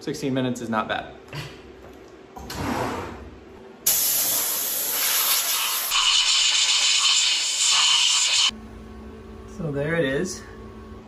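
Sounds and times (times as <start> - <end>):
compressed-air blow gun hissing: 3.9 - 8.5.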